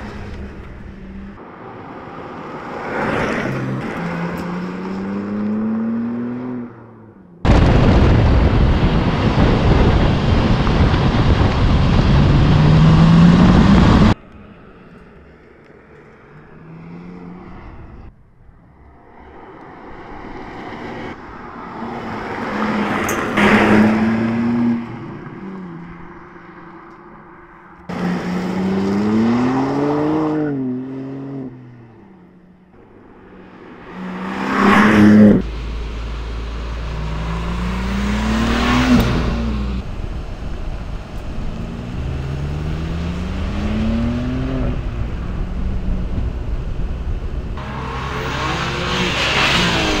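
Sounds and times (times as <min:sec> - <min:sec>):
car engine accelerating: 0:33.6 - 0:50.0.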